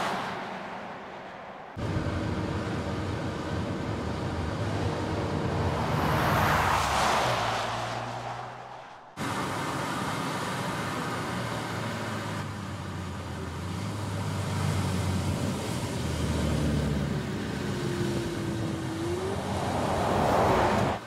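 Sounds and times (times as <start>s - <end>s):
rush of noise: 0.0s - 9.9s, 17.9s - 21.0s
tyre and road noise: 0.0s - 21.0s.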